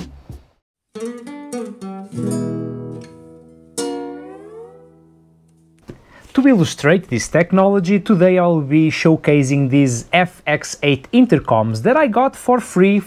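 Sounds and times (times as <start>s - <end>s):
plucked guitar notes: 0.9s - 5.8s
strummed guitar chord: 1.0s - 5.8s.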